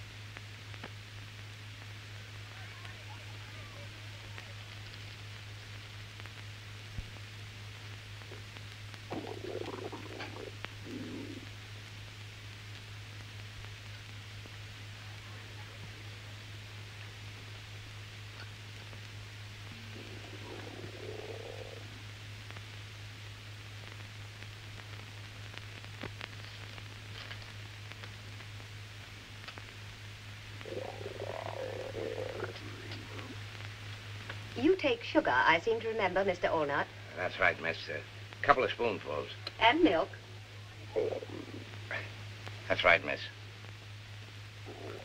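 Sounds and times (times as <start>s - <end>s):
film soundtrack hiss: 0.0s - 45.0s
steady low hum: 0.0s - 45.0s
stomach gurgling: 8.2s - 11.8s, 19.5s - 22.6s, 30.6s - 34.5s, 40.0s - 42.7s, 44.6s - 45.0s.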